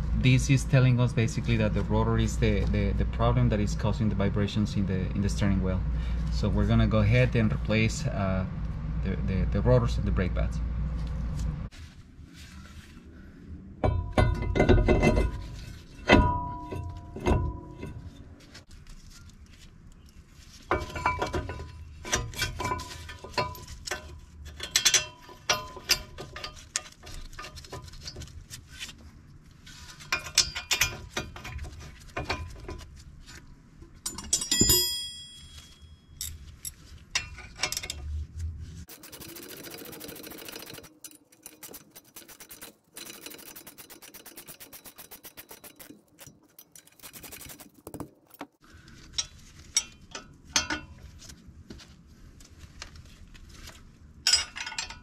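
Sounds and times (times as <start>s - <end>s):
loud ringing metal clank: 16.0s - 18.2s
metal tools clinking: 20.7s - 28.3s, 29.9s - 32.8s, 34.0s - 38.1s, 38.9s - 51.0s, 54.2s - 55.0s
ratchet clicking: 38.9s - 47.9s.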